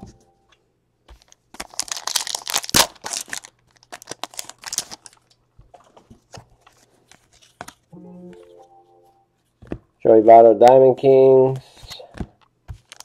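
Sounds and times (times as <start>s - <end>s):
foil wrapper tearing and crinkling: 1.2s - 5.3s, 12.8s - 13.0s.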